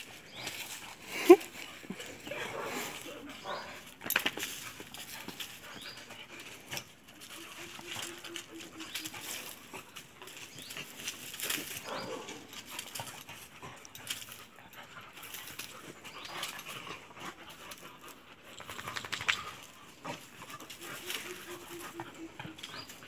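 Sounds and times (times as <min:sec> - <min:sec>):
paws scuffling on dirt and leaves: 0:00.0 - 0:23.0.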